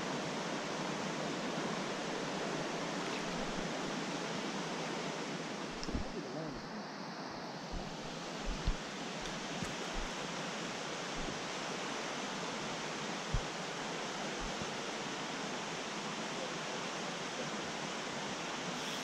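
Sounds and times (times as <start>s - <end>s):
creek rushing over rocks: 0.0s - 6.7s, 7.6s - 19.0s
soft low thumps: 7.8s - 10.2s, 11.2s - 11.4s, 13.3s - 13.5s, 14.4s - 14.7s.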